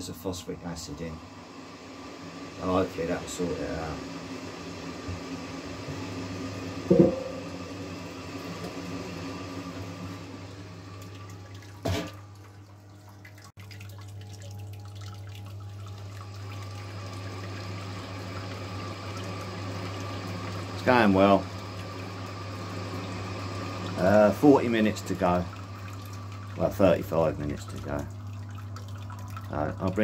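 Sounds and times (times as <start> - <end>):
pump humming: 0.0 - 30.0
short knock: 6.9 - 7.4
liquid pouring and trickling: 10.9 - 30.0.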